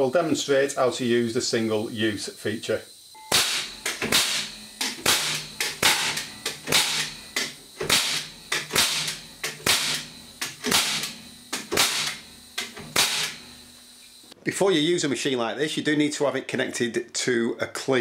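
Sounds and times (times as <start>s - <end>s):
nail gun shots: 3.3s - 13.4s.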